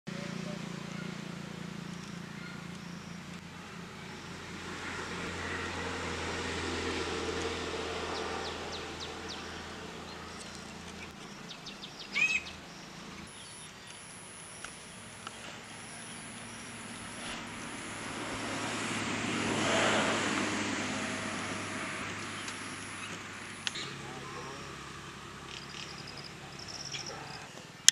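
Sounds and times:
outdoor noise: 0.1 - 27.9
bird chirp: 0.4 - 4.4, 8.0 - 18.7, 25.5 - 27.5.

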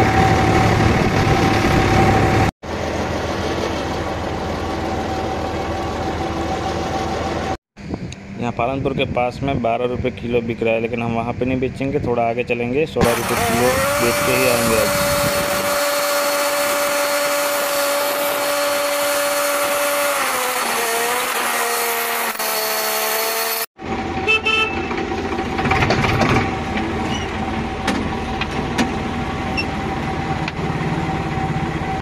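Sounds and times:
tractor engine running: 0.0 - 7.6, 23.8 - 32.0.

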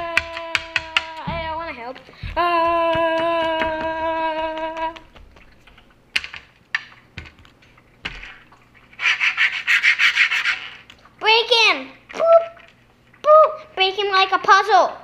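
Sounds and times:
child singing a long note: 0.0 - 1.3.

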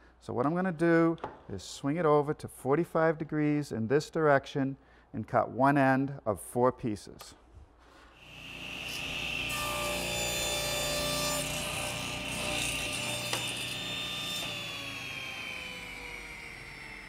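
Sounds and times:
saw cutting wood: 8.2 - 17.0
table saw whine: 8.2 - 17.0.

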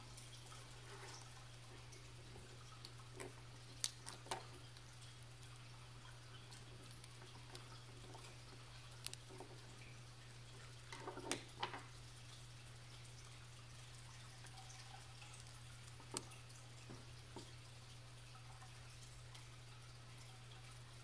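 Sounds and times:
small metal clicks and taps: 6.4 - 9.6, 10.9 - 11.9, 15.2 - 17.6.

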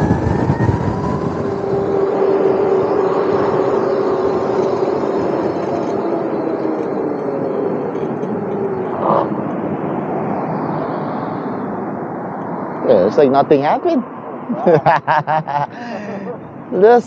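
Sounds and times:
electric drive whine: 0.0 - 12.9
wind rushing over microphone: 0.0 - 17.0.

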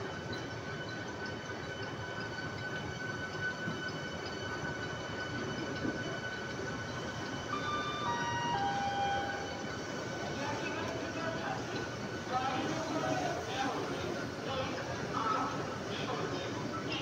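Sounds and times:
thin high whine: 4.0 - 17.0
falling chime-like tones: 7.5 - 9.6.

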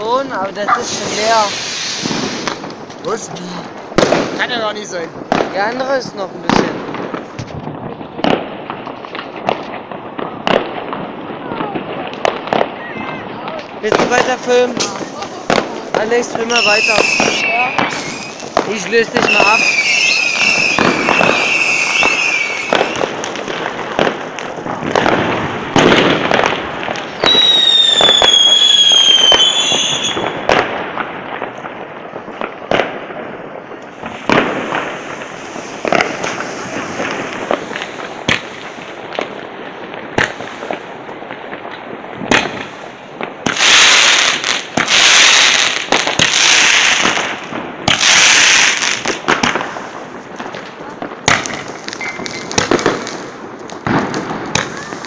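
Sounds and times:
fireworks and firecrackers banging: 0.0 - 55.0
loud hissing bursts: 0.8 - 2.5
whistling firework falling in pitch: 16.5 - 18.4, 19.3 - 23.1, 27.2 - 30.4.

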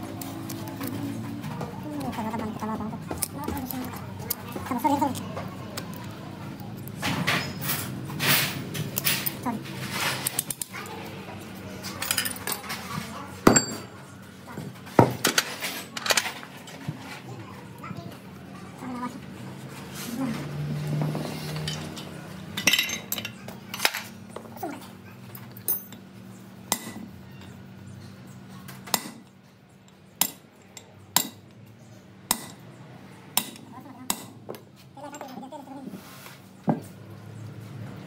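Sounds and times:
metal tools clinking: 12.0 - 13.9, 21.4 - 24.1, 25.3 - 26.0.

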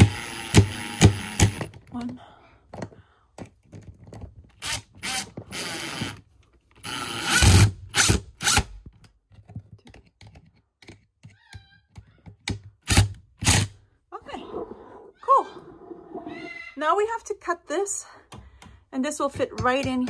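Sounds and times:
screws being driven: 0.0 - 1.7, 4.6 - 6.2, 6.8 - 8.7, 12.8 - 13.7
metal clicks and knocks on wood: 18.3 - 20.0.

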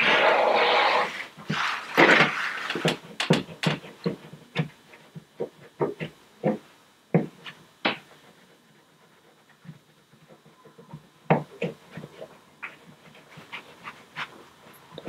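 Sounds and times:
short rubbing sound: 0.0 - 2.9.

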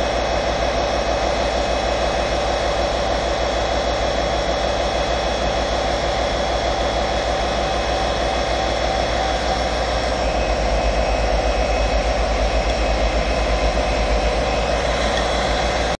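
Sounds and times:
diesel locomotive engine rumbling: 8.2 - 15.9.

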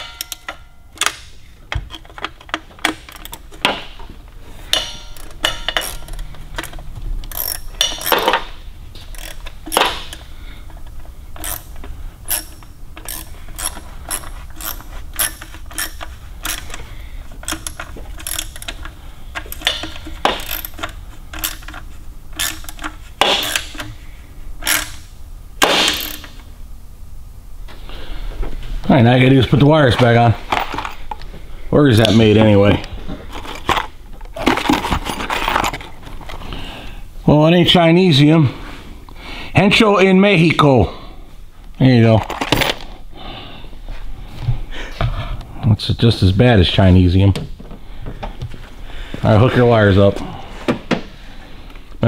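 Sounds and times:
hand ratchet clicking: 0.0 - 3.8, 4.7 - 8.4, 9.0 - 24.0, 24.6 - 25.1, 25.9 - 26.4
metal clinks: 4.7 - 8.6.

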